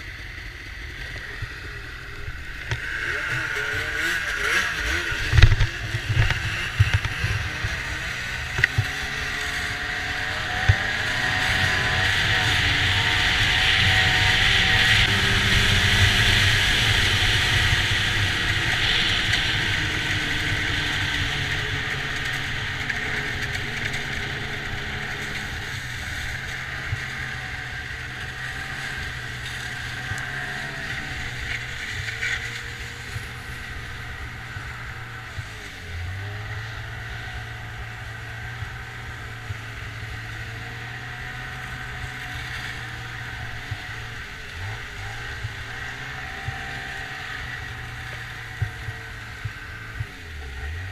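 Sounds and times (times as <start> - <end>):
snowmobile engine running: 0.0 - 50.9
snowmobile track noise: 0.0 - 50.9.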